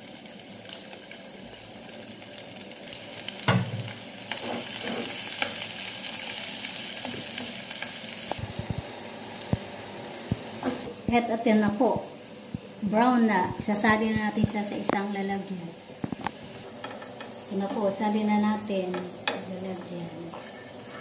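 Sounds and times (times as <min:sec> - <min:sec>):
garlic sizzling in hot oil: 0:00.0 - 0:21.0
spatula scraping and tapping pan: 0:16.0 - 0:17.4, 0:18.9 - 0:21.0.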